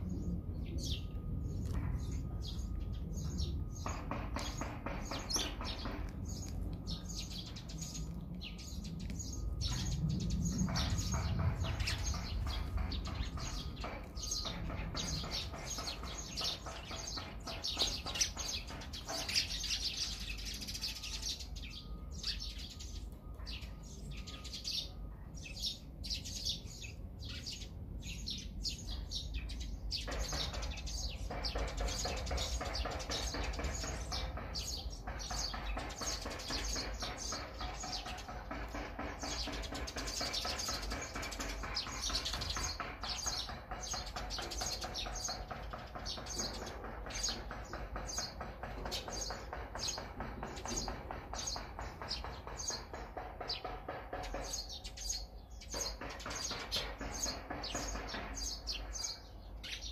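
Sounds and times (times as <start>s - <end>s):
small songbirds chirping: 0.0s - 59.9s.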